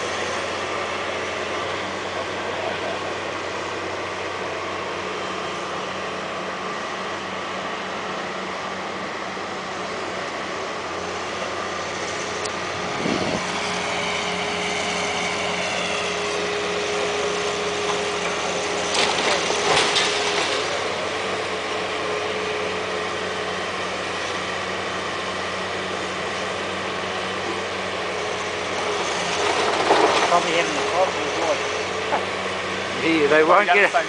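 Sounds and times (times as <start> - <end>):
excavator engine running: 0.0 - 34.0
falling masonry crashing: 18.0 - 21.0, 28.8 - 31.6.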